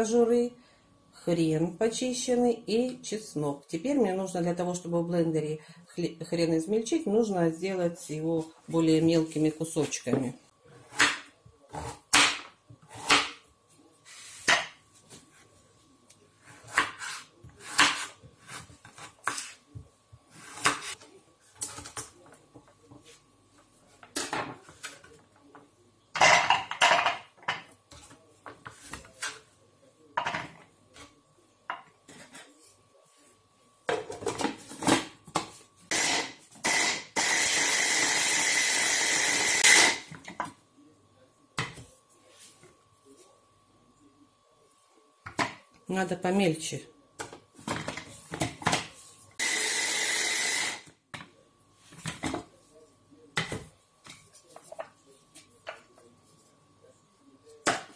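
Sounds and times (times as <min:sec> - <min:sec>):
hand blender chopper running: 0:35.9 - 0:40.0, 0:49.4 - 0:50.8.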